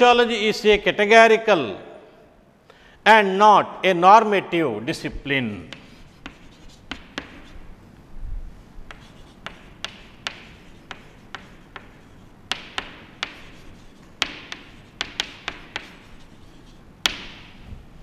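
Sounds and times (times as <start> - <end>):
chalk tapping on chalkboard: 5.7 - 7.7, 8.8 - 17.7
chalk scratching strokes: 5.7 - 7.8, 8.6 - 17.7.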